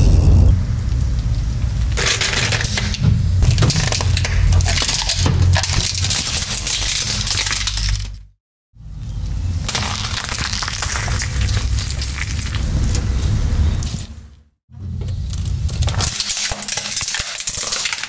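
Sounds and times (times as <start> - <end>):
steady low rumble: 0.0 - 2.0
plastic toy cracking and snapping: 2.0 - 8.1, 15.4 - 18.0.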